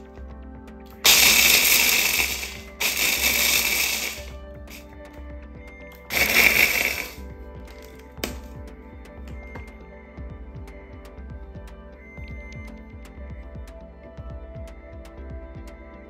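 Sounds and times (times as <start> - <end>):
electric chopper grinding pretzels: 1.0 - 4.8, 6.1 - 7.2.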